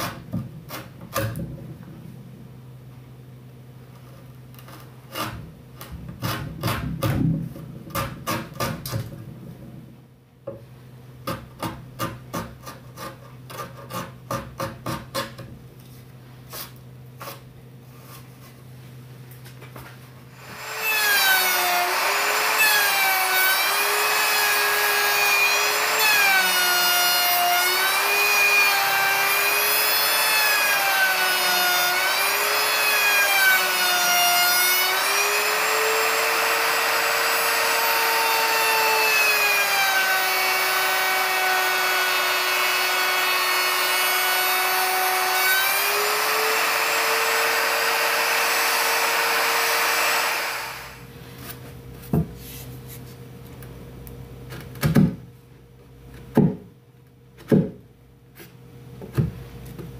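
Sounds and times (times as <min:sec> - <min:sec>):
chisel scraping wood: 0:04.0 - 0:07.1, 0:11.3 - 0:15.5
router cutting wood: 0:20.3 - 0:51.1.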